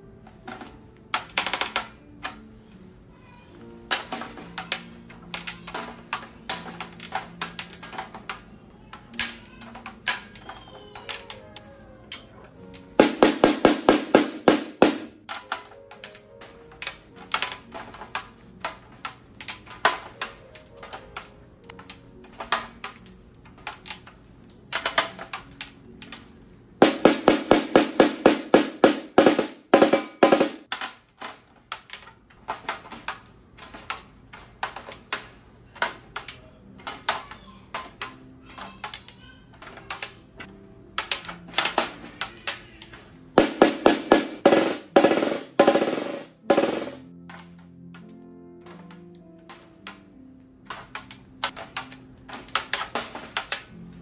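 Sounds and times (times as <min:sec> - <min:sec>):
drumstick on snare drum: 0:13.0 - 0:15.2, 0:26.8 - 0:30.7, 0:43.4 - 0:47.0.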